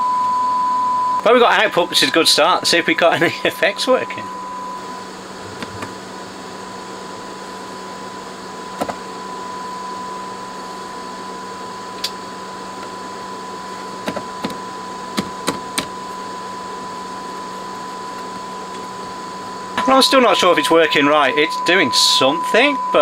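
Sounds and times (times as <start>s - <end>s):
amplifier hiss and hum: 0.0s - 23.0s
thin high tone: 19.8s - 23.0s.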